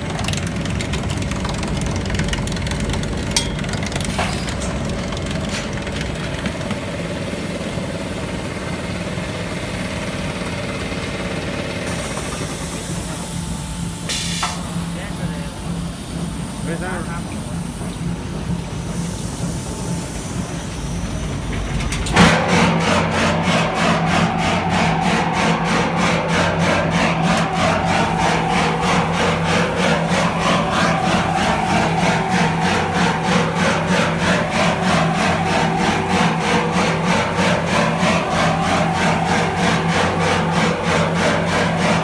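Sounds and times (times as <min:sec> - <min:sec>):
motor hum: 0:00.0 - 0:08.3, 0:20.4 - 0:42.0.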